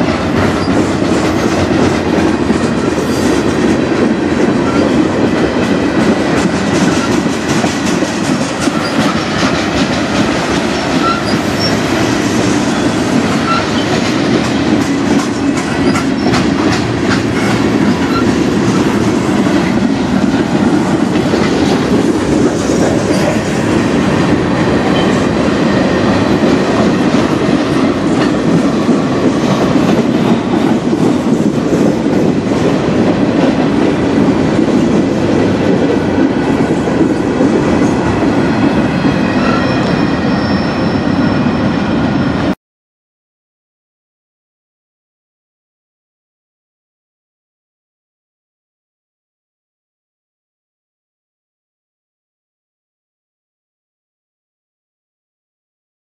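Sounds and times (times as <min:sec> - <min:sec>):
wheels clacking on rail joints: 0:00.0 - 0:40.4
steel wheels rumbling on rails: 0:00.0 - 0:42.6.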